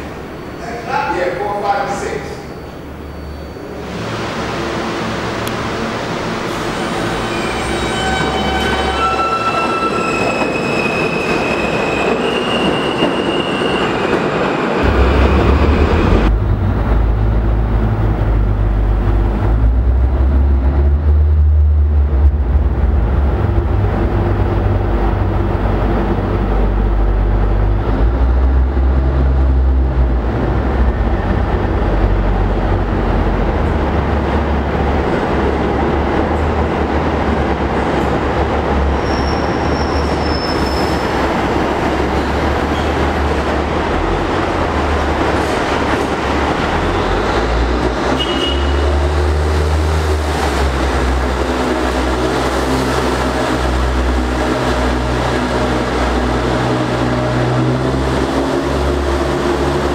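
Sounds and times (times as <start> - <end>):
train rumbling in tunnel: 0.0 - 59.9
approaching train whine: 1.6 - 37.7
train propulsion whine: 2.3 - 33.8.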